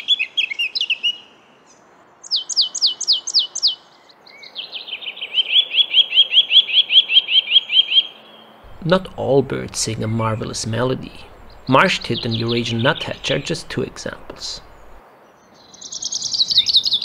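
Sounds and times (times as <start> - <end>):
warbling birdsong: 0.0 - 17.0
rising bird notes: 8.7 - 15.0.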